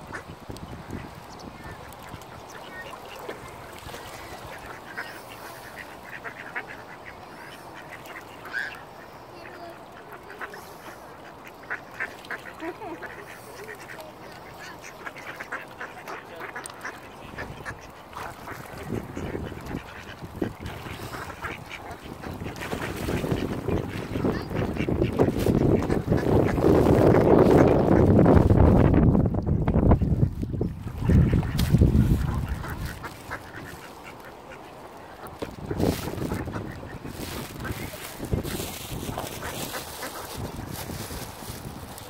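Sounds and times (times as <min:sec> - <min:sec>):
ducks quacking: 0:00.0 - 0:28.9, 0:29.9 - 0:42.0.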